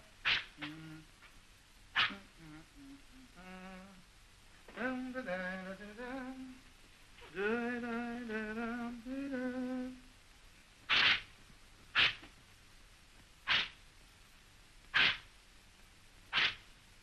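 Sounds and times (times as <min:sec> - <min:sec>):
man humming a slow tune: 0:00.6 - 0:01.2, 0:02.0 - 0:04.1, 0:04.7 - 0:06.6, 0:07.2 - 0:10.1.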